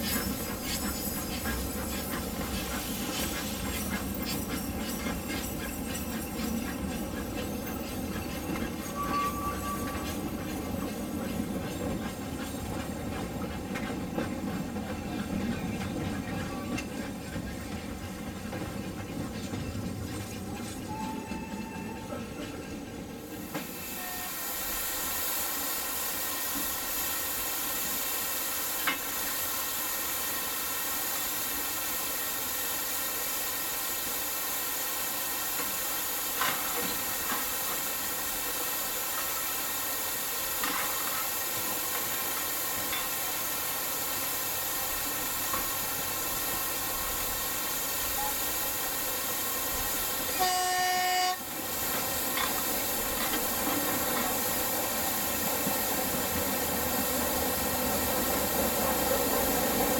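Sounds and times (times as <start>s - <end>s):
railcar horn blast: 20.9s - 22.4s, 23.9s - 24.6s, 50.3s - 51.5s.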